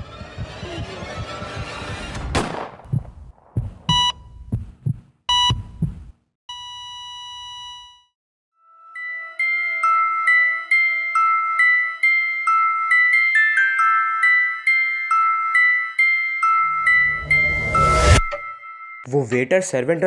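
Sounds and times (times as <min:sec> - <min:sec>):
heartbeat thumps: 0:00.0 - 0:06.3
sharp gunshot-like bang: 0:02.2 - 0:02.9
heart monitor beeps: 0:03.6 - 0:08.0
soft glockenspiel-like music: 0:08.6 - 0:19.5.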